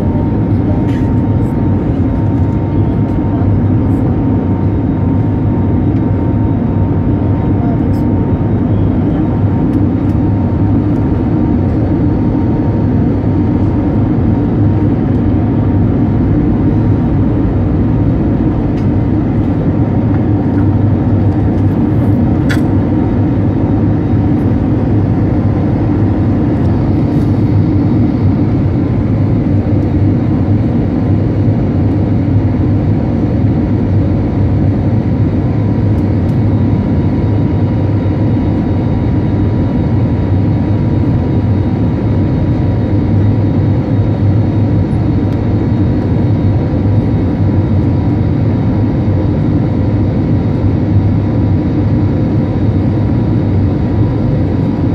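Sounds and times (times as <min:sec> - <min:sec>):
jet engine and airflow rumble: 0:00.0 - 0:54.9.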